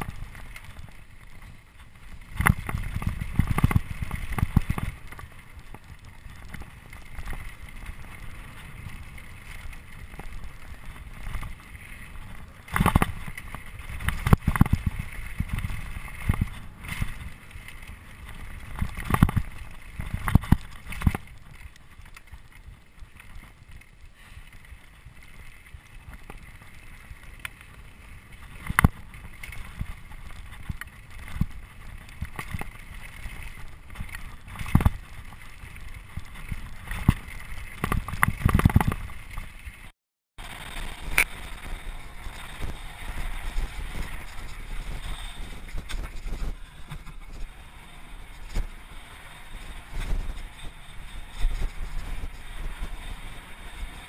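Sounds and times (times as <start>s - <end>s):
wind noise on microphone: 0.0s - 54.0s
bike knocking on rocks: 18.3s - 21.3s.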